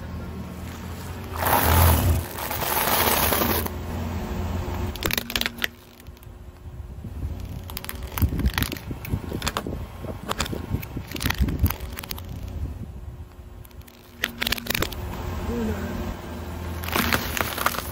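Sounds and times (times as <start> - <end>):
noodles crunching under tyre: 0.1 - 4.1, 4.7 - 15.4, 16.5 - 17.9
plastic cracking under tyre: 1.2 - 3.8, 4.8 - 6.7, 7.3 - 12.6, 13.6 - 15.0, 16.8 - 17.9.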